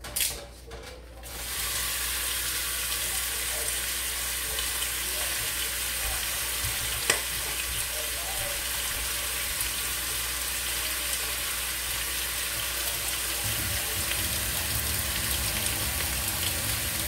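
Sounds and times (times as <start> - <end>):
meat sizzling in a pot: 1.2 - 17.0
tap running into sink: 5.3 - 8.4.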